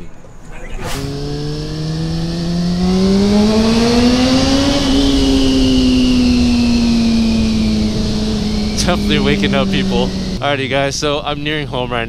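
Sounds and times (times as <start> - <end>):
motorcycle engine accelerating: 0.6 - 11.6
loud wind rush: 2.6 - 10.4.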